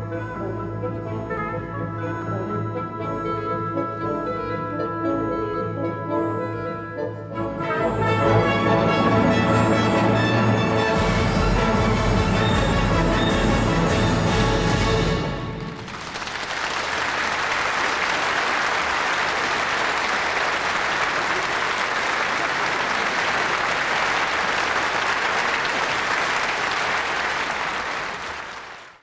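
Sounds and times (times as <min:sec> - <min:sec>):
audience applauding: 0:15.4 - 0:29.0.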